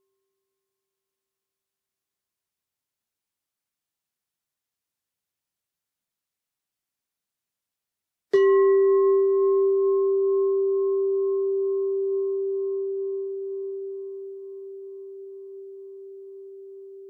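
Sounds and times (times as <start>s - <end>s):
singing bowl ringing: 8.4s - 17.0s.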